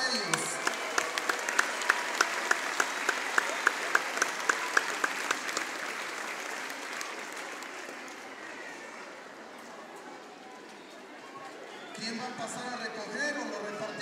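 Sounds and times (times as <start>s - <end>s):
crowd applauding: 0.0s - 9.8s
close sharp claps: 0.1s - 8.3s.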